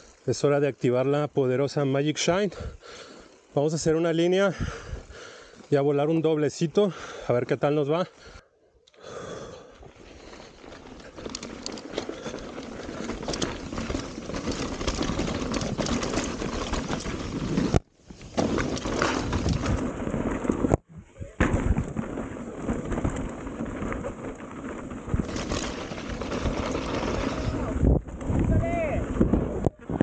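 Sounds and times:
tyres rolling on dirt: 9.2 - 30.0
bike knocks and rattles: 10.5 - 20.8, 21.4 - 30.0
wind rushing over microphone: 18.6 - 30.0.

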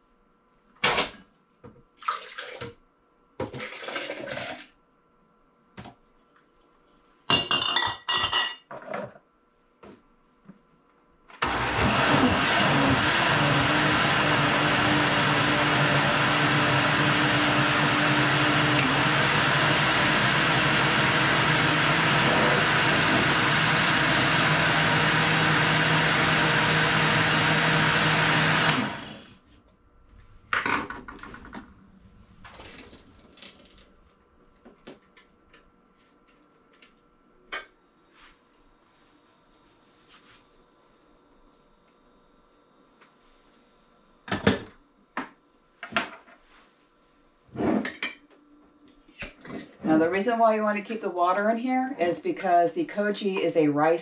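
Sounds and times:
blender motor running: 11.4 - 29.4.

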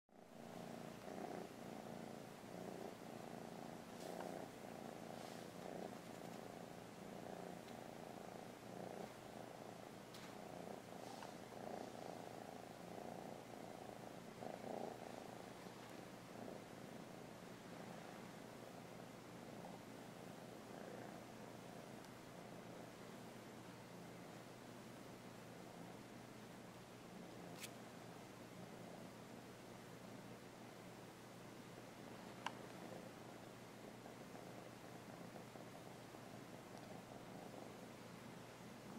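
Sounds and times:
kitten purring: 0.2 - 38.9
faint rustles: 0.4 - 18.5.

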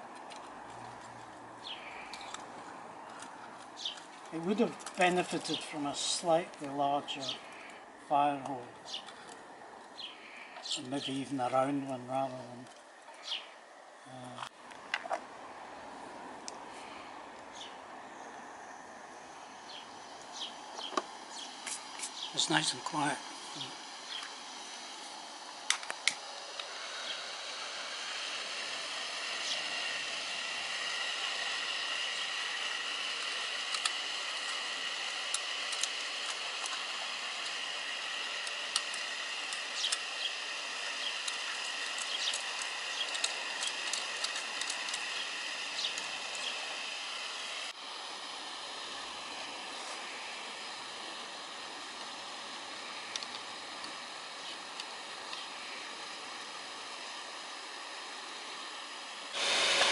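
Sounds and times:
electric fan hissing and whining: 0.0 - 14.6, 15.3 - 59.9
clicks and taps of coal and tools: 41.2 - 45.0.

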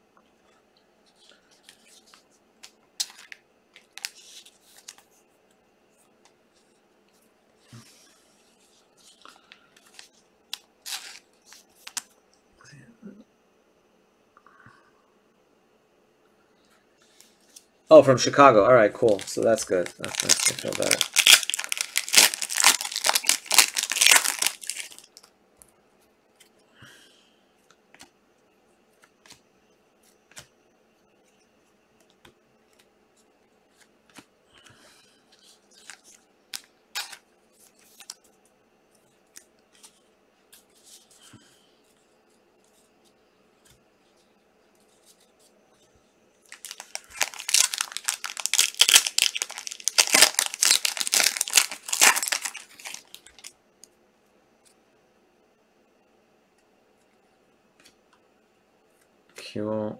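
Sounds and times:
card wrappers tearing and crinkling: 3.0 - 5.0, 9.8 - 12.1, 19.0 - 25.3, 35.4 - 38.2, 46.5 - 53.5.

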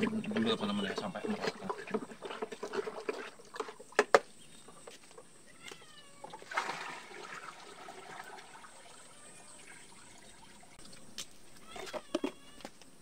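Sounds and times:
liquid splashing into a drum: 0.0 - 4.2, 6.2 - 9.0
liquid sloshing in a bucket: 0.0 - 5.2, 6.1 - 11.0.

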